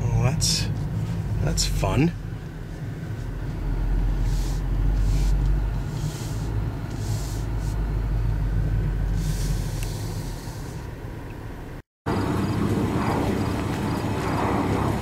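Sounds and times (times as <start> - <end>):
car engine rumble: 0.0 - 15.0
road noise: 0.0 - 15.0
brief hissing: 4.2 - 7.9, 9.1 - 10.9.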